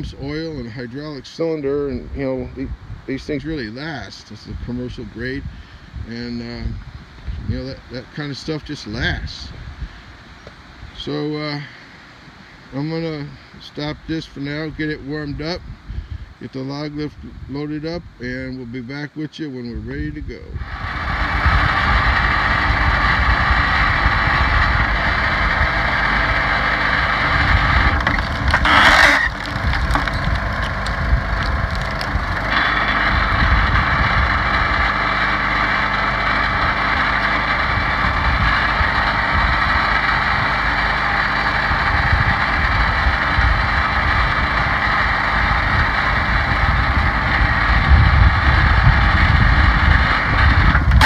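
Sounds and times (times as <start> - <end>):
log splitter engine running: 20.6 - 51.0.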